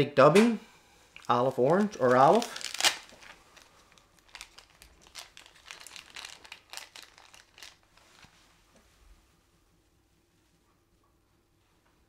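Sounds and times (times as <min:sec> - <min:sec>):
plastic packet crinkling: 0:01.2 - 0:08.3.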